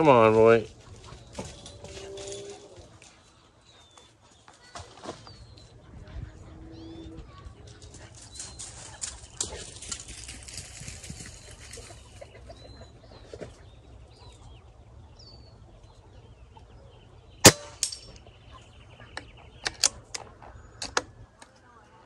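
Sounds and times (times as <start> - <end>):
birds chirping: 0.0 - 22.0
air rifle shot: 17.4 - 18.0.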